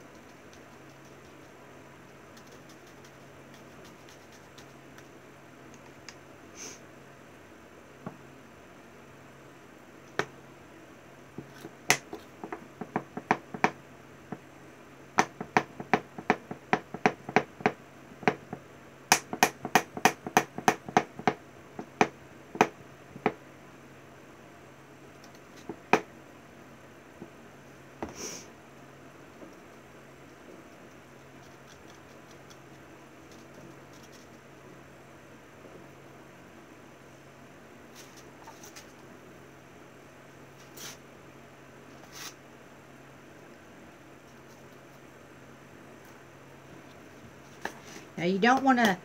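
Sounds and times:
shaker clicking and tapping: 0.0 - 6.2.

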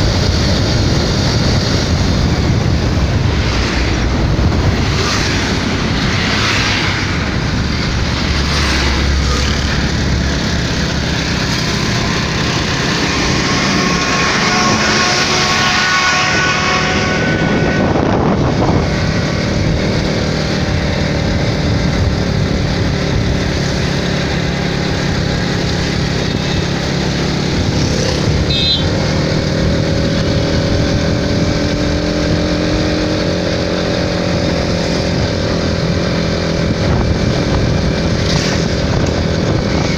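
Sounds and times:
motorcycle engine running: 0.0 - 39.9
road noise: 0.0 - 39.9
wind noise: 0.0 - 39.9.

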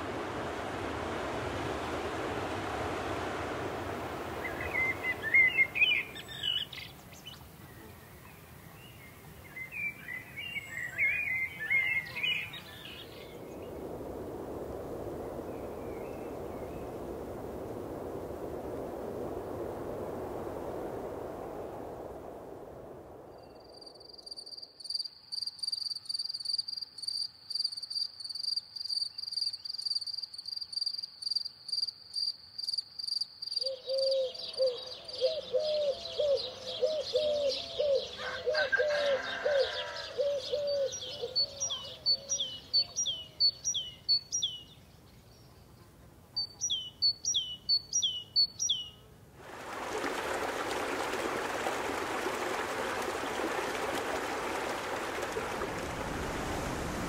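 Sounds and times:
stream rushing over rocks: 0.0 - 6.7, 49.4 - 57.0
crickets trilling: 13.3 - 33.8
rapidly repeated bird call: 33.5 - 44.7.

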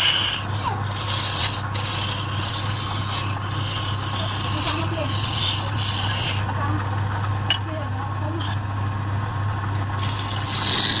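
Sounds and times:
hiss of cutting wood: 0.0 - 6.5, 10.0 - 11.0
wood lathe humming: 0.0 - 6.6, 10.0 - 11.0.

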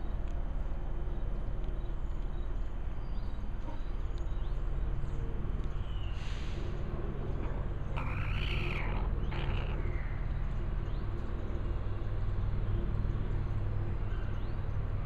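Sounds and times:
steady low hum: 0.0 - 15.0
rooster calling: 8.0 - 9.9.

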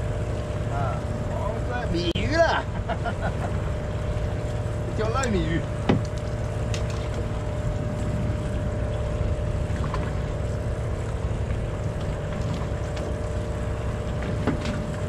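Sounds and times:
boat engine idling: 0.0 - 15.0.

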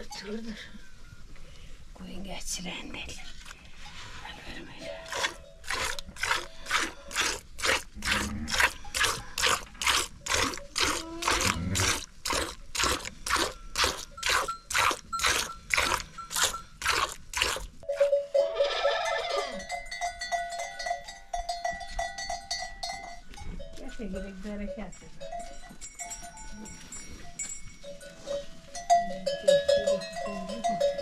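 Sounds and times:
goat bleating: 10.8 - 12.0, 18.6 - 19.6.

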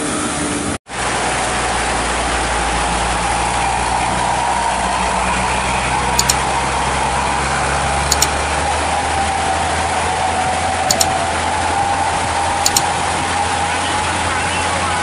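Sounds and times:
heavy truck engine running: 0.0 - 15.0
mouse double clicks: 6.2 - 6.4, 8.1 - 8.4, 10.9 - 11.2, 12.6 - 12.9.

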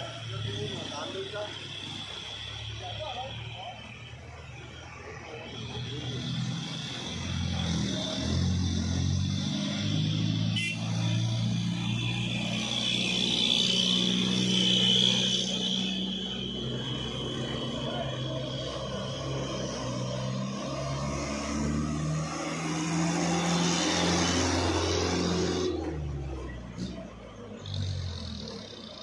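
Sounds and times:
high-pitched whine: 0.0 - 29.0
truck diesel engine passing: 0.0 - 29.0.

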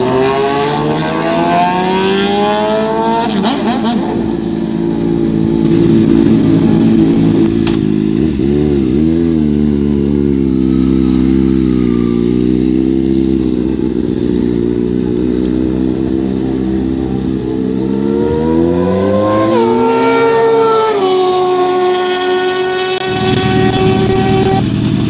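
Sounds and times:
motorcycle engine running: 4.9 - 19.2, 21.0 - 25.0.

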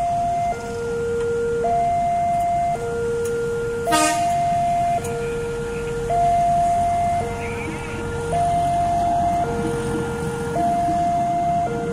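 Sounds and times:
level crossing two-tone alarm: 0.0 - 9.7, 10.5 - 11.9
low traffic: 0.0 - 11.9
train horn blast: 3.9 - 4.5
train rumble: 3.9 - 11.9.

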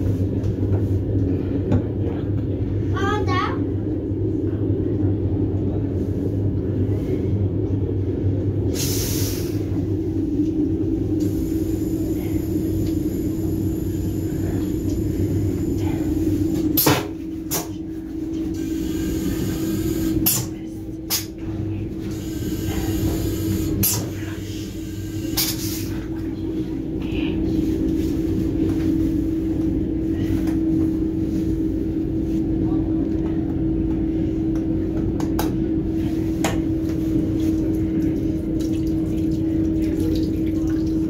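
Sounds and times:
train rumble and hum: 0.0 - 41.0.

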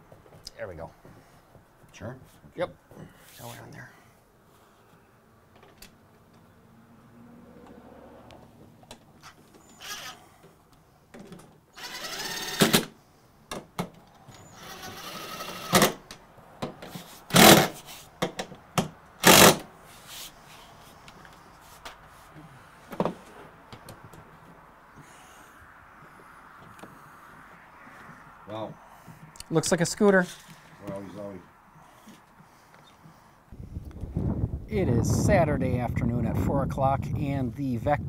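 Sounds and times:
cordless drill driving screws: 9.2 - 10.2, 11.8 - 13.0, 14.4 - 16.0, 17.3 - 17.8, 19.2 - 19.7.

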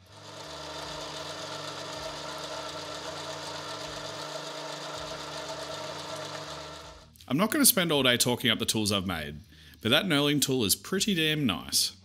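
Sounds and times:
metal lathe whirring: 0.0 - 7.1.

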